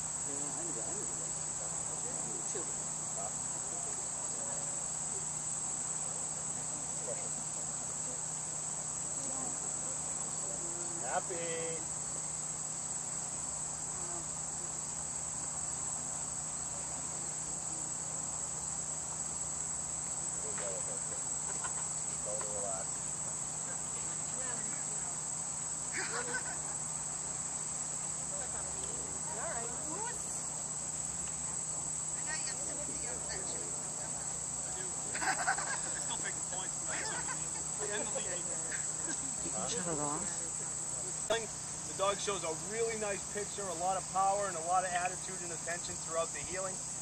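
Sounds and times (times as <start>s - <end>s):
faint distant voices: 0.0s - 11.9s, 20.2s - 26.9s, 28.1s - 46.8s
insects chirring: 0.0s - 47.0s.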